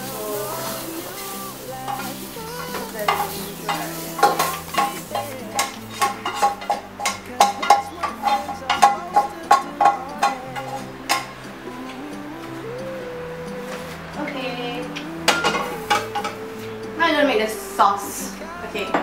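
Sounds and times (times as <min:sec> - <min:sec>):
spatula scraping frying pan: 0:00.0 - 0:11.4, 0:15.3 - 0:16.4
hot oil sizzling: 0:00.0 - 0:19.0.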